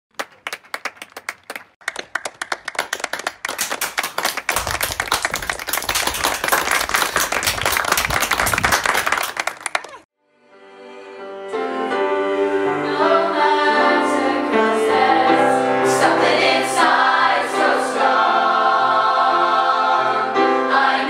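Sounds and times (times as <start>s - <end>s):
crowd applause: 0.2s - 10.1s.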